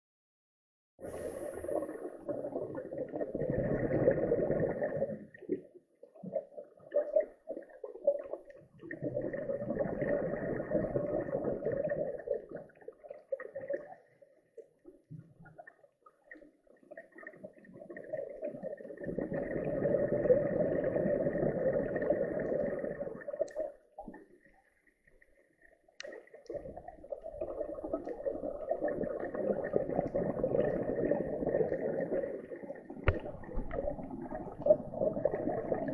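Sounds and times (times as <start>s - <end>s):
diver's exhaled air bubbling: 1.0s - 5.6s, 8.2s - 12.8s, 17.7s - 23.7s, 26.5s - 35.9s.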